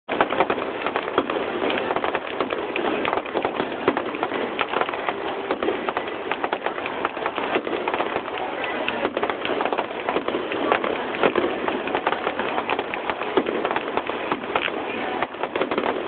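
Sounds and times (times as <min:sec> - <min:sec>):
fireworks rapid pops and bangs: 0:00.0 - 0:16.0.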